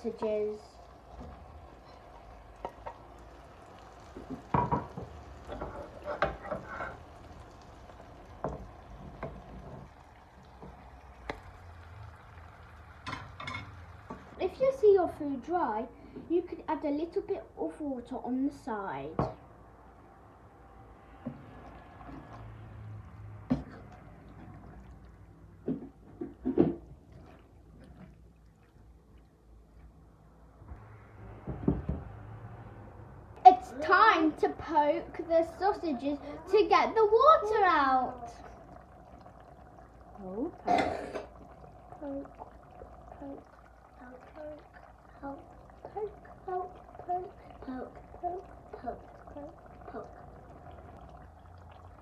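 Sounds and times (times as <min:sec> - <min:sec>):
wooden spoon stirring in frying pan: 0:00.0 - 0:11.4
frying pan sizzling: 0:00.0 - 0:15.8, 0:30.8 - 0:52.0
spoon scraping and knocking pan: 0:04.6 - 0:07.0.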